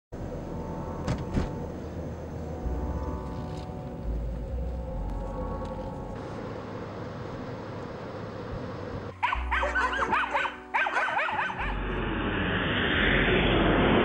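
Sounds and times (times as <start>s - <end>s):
car road noise: 0.1s - 14.0s
dogs barking and yelping: 9.2s - 11.8s
rush of noise: 11.1s - 14.0s.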